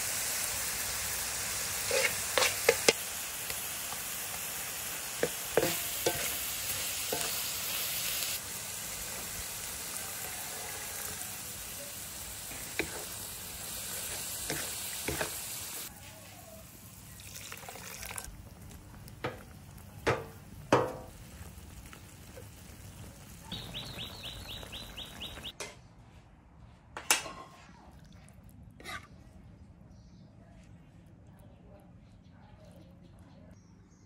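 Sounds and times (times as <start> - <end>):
food sizzling in a pan: 0.0 - 25.6.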